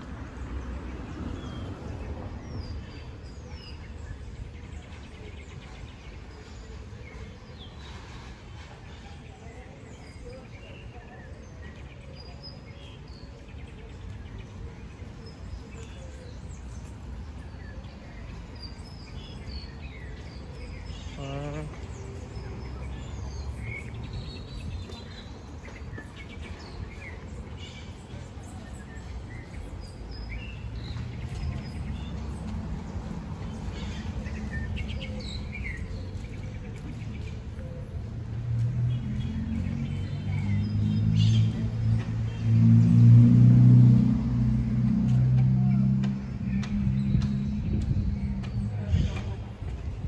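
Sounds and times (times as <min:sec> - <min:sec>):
street traffic rumble: 0:00.0 - 0:50.0
passing vehicle: 0:36.5 - 0:50.0.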